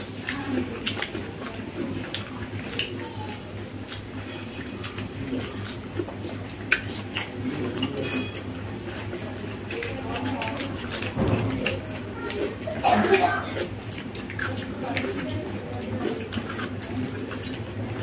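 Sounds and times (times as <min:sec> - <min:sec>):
fingers squishing food: 0:00.0 - 0:18.0
lip smacks and chewing: 0:00.0 - 0:18.0.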